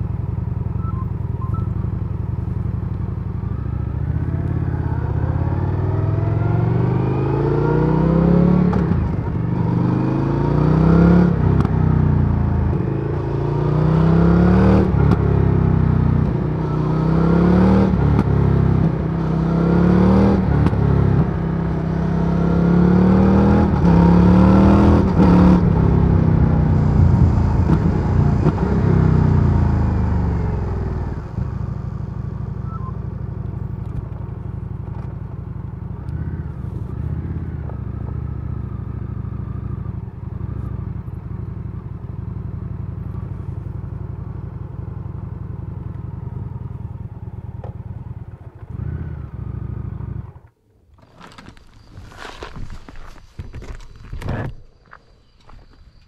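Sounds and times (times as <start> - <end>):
motorcycle engine revving: 0.0 - 53.2.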